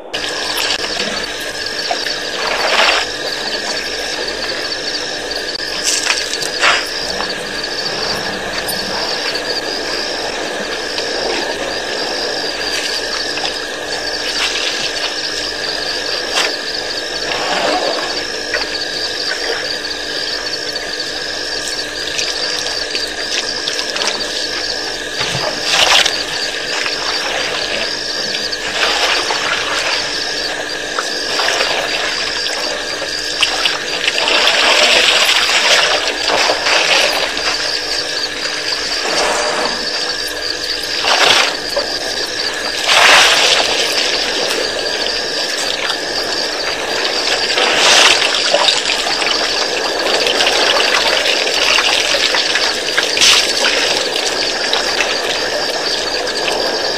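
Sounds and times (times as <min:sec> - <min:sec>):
hum of insects: 0:00.0 - 0:56.9
trilling insect call: 0:00.0 - 0:56.9
water running and splashing: 0:21.5 - 0:39.0.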